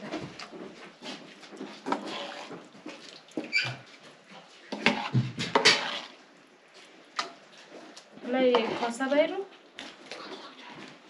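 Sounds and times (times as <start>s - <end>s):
liquid slopping: 0.0s - 11.0s
metal ladle scraping a pot: 1.6s - 2.6s, 4.7s - 6.2s, 8.2s - 9.2s.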